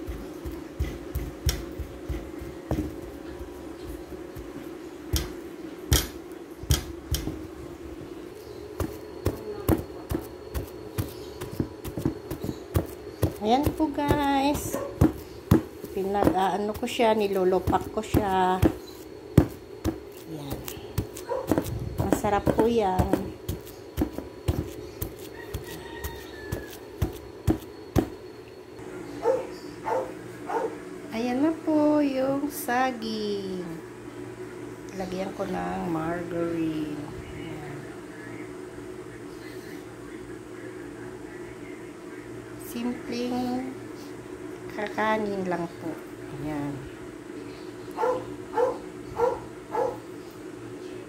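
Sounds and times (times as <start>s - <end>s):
wooden pestle thudding in mortar: 0.0s - 3.1s, 8.8s - 16.9s, 17.6s - 28.2s.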